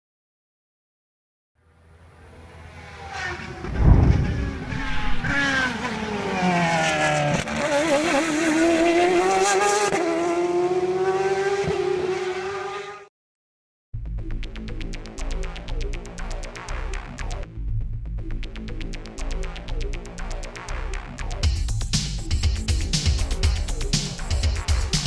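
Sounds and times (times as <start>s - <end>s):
car engine revving: 2.2s - 13.1s
heavy thump: 3.7s - 5.3s
electronic music with steady beat: 14.0s - 25.0s.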